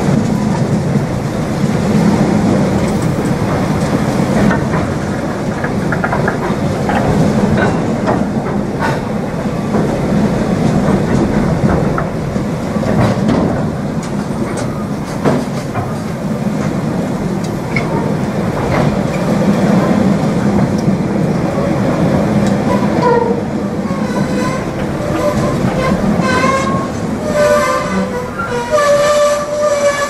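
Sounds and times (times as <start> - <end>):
freight train rumbling past: 0.0 - 30.0
wheel clicks over rail joints: 2.0 - 21.4.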